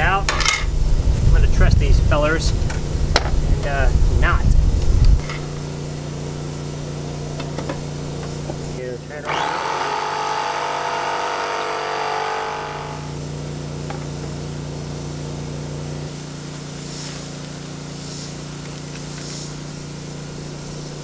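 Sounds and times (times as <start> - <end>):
low machine hum: 0.0 - 21.0
high whining tone: 9.2 - 13.3.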